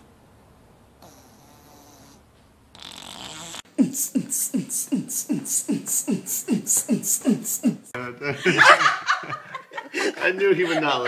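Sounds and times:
beatboxing: 3.3s - 8.0s.

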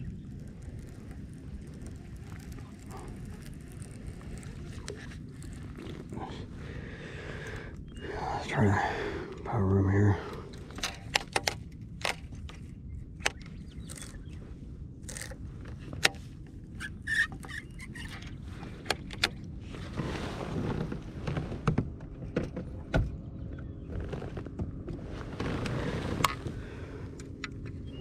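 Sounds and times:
fishing tackle clicks and scrapes: 0.0s - 6.6s, 10.5s - 14.4s, 15.0s - 19.5s, 25.5s - 28.0s
low steady rumble: 0.0s - 28.0s.

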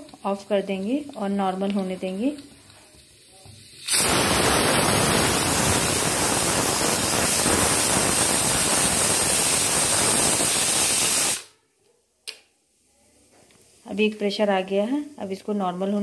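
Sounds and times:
pressure cooker steam hissing: 1.8s - 11.5s.

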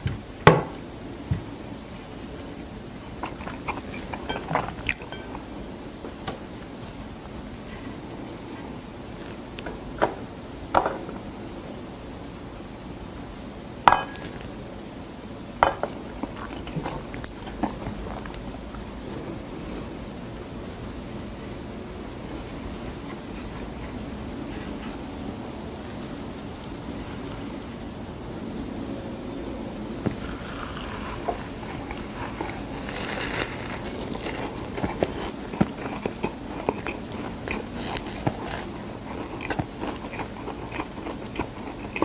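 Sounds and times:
spoon clinking on a plate: 4.1s - 5.4s, 13.9s - 14.4s
crisp seaweed rustling: 17.0s - 40.7s
crunchy bites: 29.7s - 42.0s.

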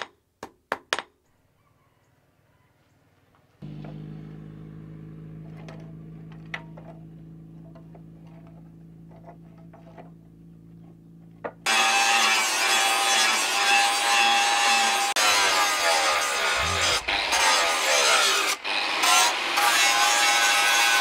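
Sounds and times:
quiet low hum: 3.6s - 11.7s
angle grinder grinding steel: 3.6s - 21.0s.

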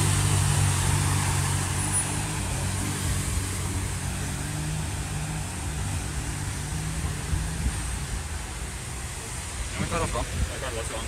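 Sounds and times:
truck engine running: 0.0s - 8.8s
water rushing: 0.0s - 11.0s.

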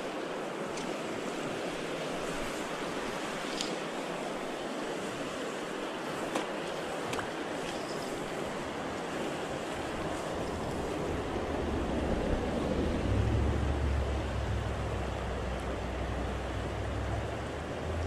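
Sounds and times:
river current rushing: 0.0s - 18.0s
low rumble: 11.6s - 18.0s.

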